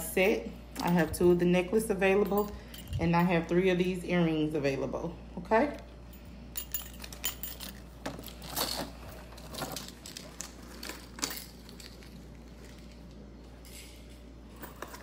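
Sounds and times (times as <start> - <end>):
chain necklace clinking: 2.1 - 3.5, 6.1 - 15.0.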